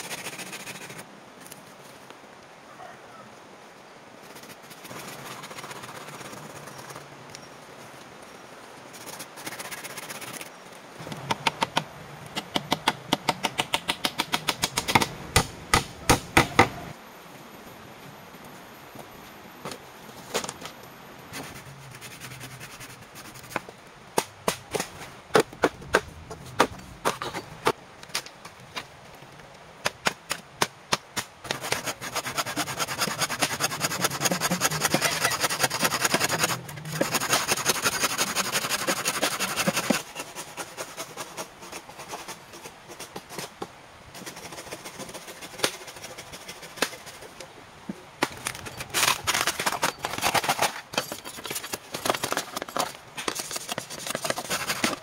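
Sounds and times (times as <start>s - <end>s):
sharp wooden knocks: 11.0s - 16.9s
hand saw cutting bamboo: 31.5s - 42.4s, 53.3s - 55.0s.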